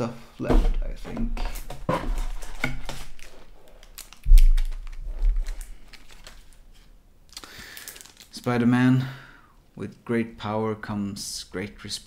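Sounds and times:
packaging crinkling and rustling: 1.4s - 8.6s.

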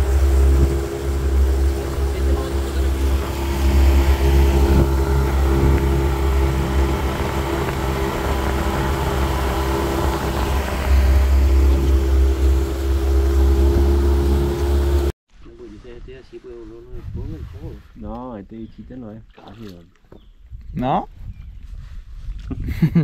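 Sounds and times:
outboard motor running: 0.0s - 15.1s
water rushing from boat wake: 0.0s - 15.1s.

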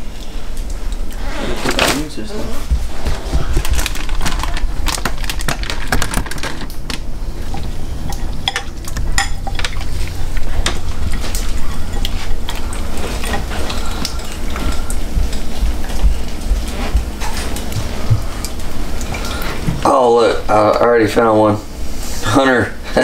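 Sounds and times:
paper bag crinkling and rustling: 1.4s - 7.8s.

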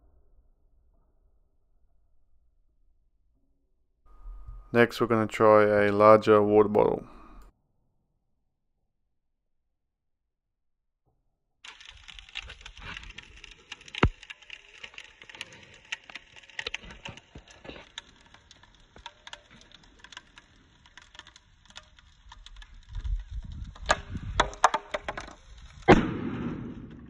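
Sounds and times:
plastic bottle crackling and creaking: 11.7s - 26.0s.

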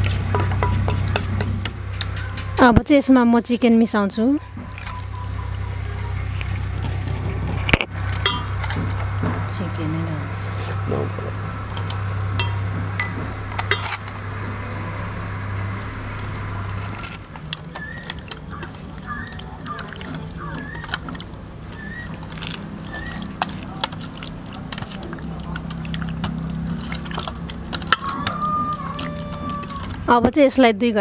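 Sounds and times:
metallic clinks against bowl: 11.8s - 14.1s
wet squishing of meat: 16.9s - 30.1s.

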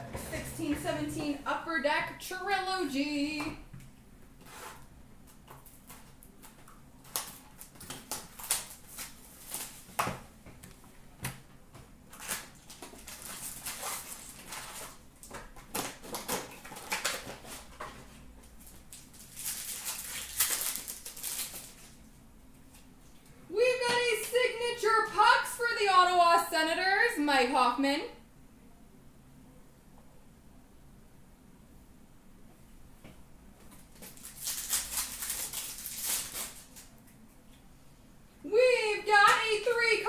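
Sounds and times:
crinkling and tearing of wrapper: 5.6s - 9.9s, 12.1s - 17.7s, 18.7s - 22.0s, 33.9s - 37.0s.

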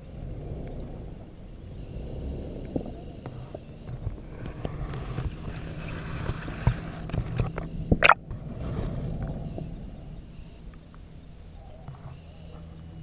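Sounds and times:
underwater clicks and knocks: 8.0s - 8.2s.

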